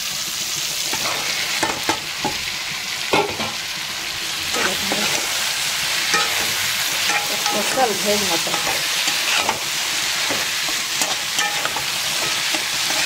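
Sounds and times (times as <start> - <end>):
food sizzling in oil: 0.0 - 13.0
scraping against pan: 8.5 - 13.0.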